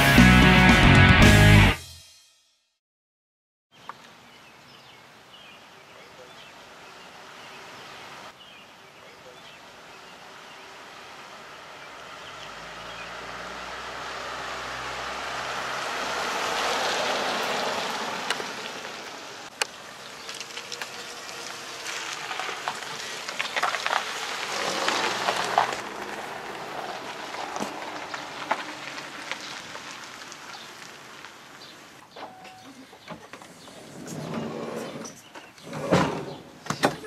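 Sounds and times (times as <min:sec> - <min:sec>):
minivan driving past: 0:09.6 - 0:31.8
tyres crackling over gravel: 0:09.6 - 0:32.0.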